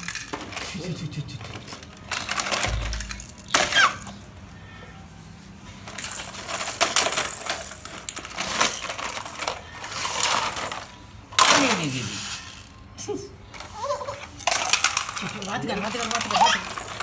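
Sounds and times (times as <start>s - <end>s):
small hard objects clattering: 5.9s - 12.1s, 14.3s - 17.0s.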